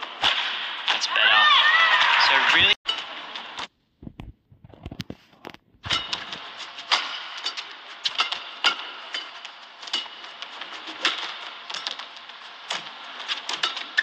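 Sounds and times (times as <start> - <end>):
steady arena hum: 5.9 - 14.0
racket striking shuttlecock: 6.9 - 10.2.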